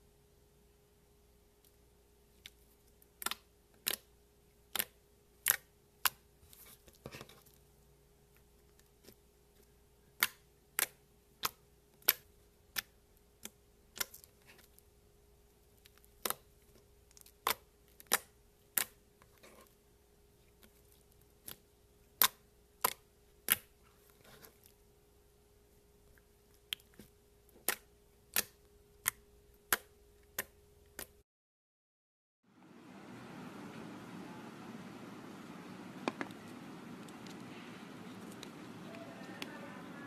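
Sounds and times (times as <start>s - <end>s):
fingers poking soft slime: 2.4s - 7.5s, 10.1s - 14.8s, 15.7s - 19.7s, 20.4s - 24.8s, 26.6s - 31.2s.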